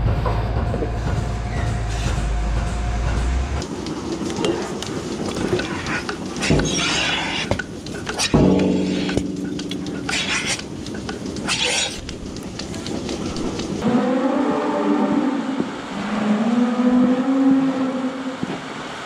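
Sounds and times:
air hissing through milking cluster: 3.6 - 13.8.

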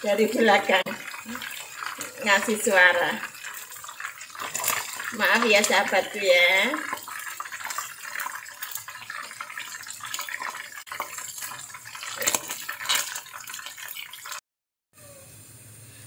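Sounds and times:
fish deep-frying in hot oil: 0.0 - 14.4
metal tongs stirring: 3.4 - 6.1, 6.7 - 14.4.

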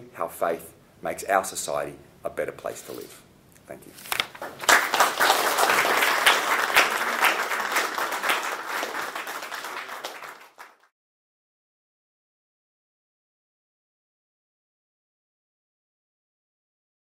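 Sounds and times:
audience applauding: 4.4 - 10.9.

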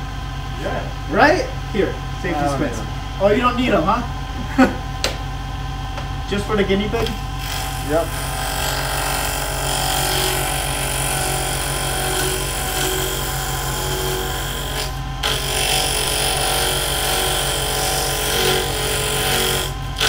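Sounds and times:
lathe motor humming: 0.0 - 20.0
chisel cutting spinning wood: 6.9 - 20.0.

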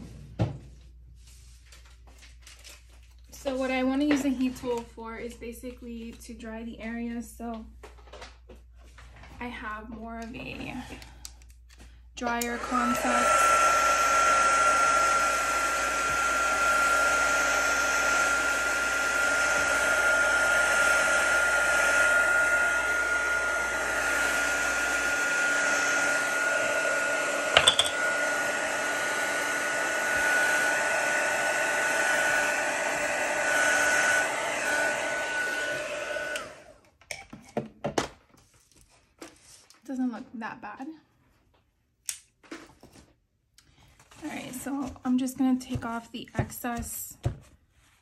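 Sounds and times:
heat tool blowing hot air: 12.2 - 36.8.

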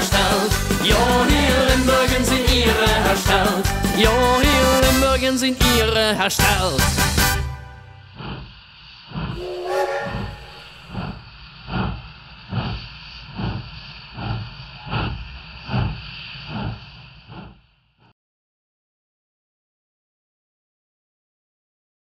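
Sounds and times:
steam locomotive chuffing: 8.1 - 17.6
steam hissing: 8.2 - 17.9
locomotive whistle: 9.3 - 11.2.

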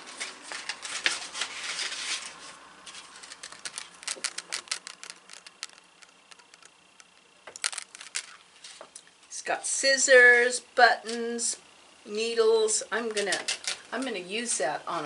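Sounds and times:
package wrapping crinkling: 0.0 - 8.8.

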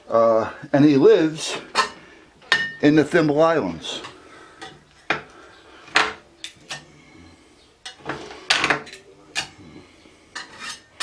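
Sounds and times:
hand tool scraping metal: 10.3 - 11.0.

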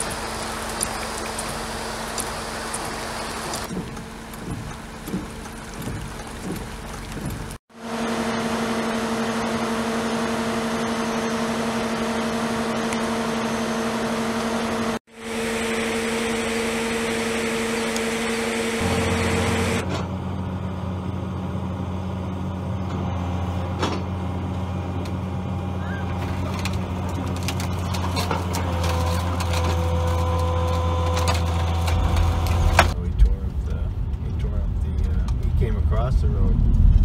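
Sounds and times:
heavy rain on water: 0.0 - 8.1
low hum: 8.2 - 28.7, 29.6 - 37.0.

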